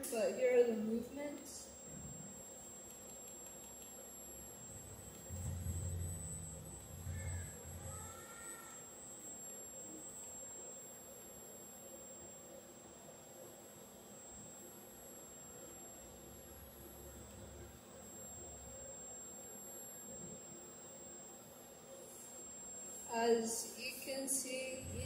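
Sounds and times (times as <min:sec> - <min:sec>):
high-pitched electrical whine: 0:00.0 - 0:25.0
robot arm servo motors whirring: 0:03.9 - 0:09.5, 0:24.7 - 0:25.0
low hum: 0:04.0 - 0:10.2, 0:24.6 - 0:25.0.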